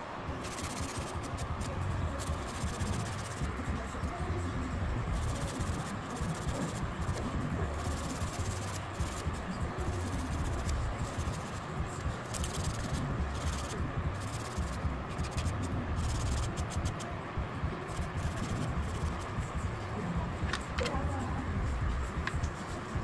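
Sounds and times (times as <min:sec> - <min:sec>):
steady low hum: 0:00.0 - 0:23.0
nail file rasping: 0:00.4 - 0:01.5, 0:02.2 - 0:03.5, 0:05.1 - 0:11.6, 0:12.2 - 0:17.1, 0:17.9 - 0:19.3.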